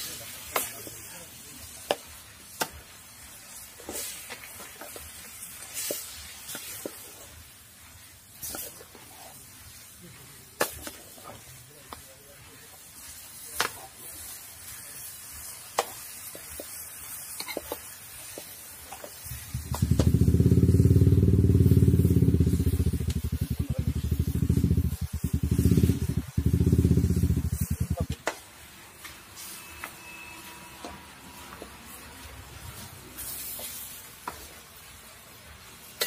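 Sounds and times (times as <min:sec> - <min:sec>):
chicken sizzling in a pan: 0:00.0 - 0:36.0
low pulsing engine rumble: 0:19.6 - 0:28.1.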